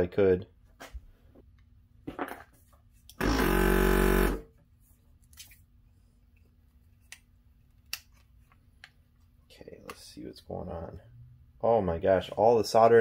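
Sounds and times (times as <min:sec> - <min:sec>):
vacuum pump buzzing: 0:03.2 - 0:04.5.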